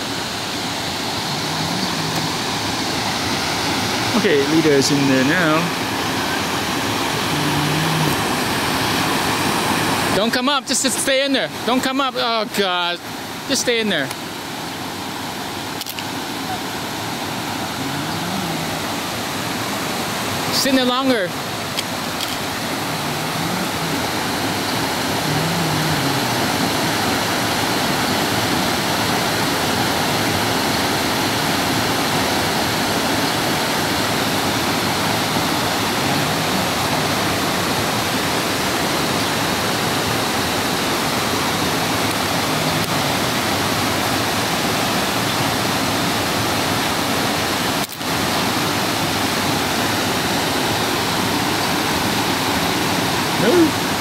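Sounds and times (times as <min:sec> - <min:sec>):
water rushing over cascades: 0:00.0 - 0:54.0.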